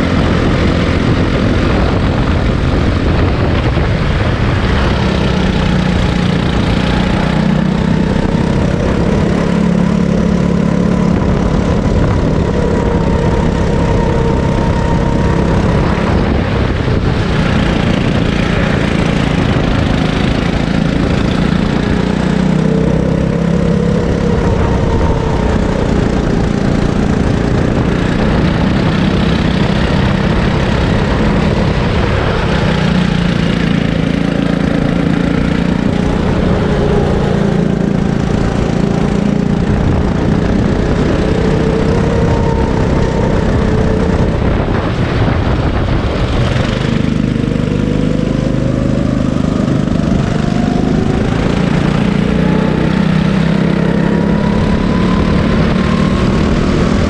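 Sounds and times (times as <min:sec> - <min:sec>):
kart engine running hard: 0:00.0 - 0:57.0.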